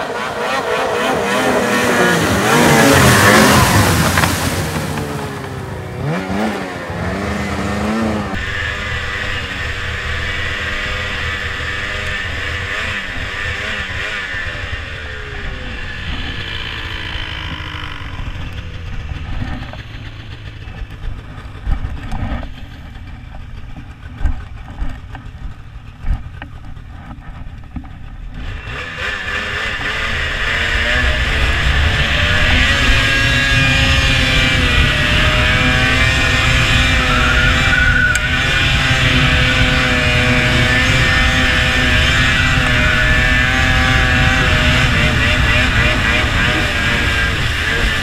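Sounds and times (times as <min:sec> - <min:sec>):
snowmobile engine running: 0:00.0 - 0:48.0
sharp thumps over rough ground: 0:02.5 - 0:06.6.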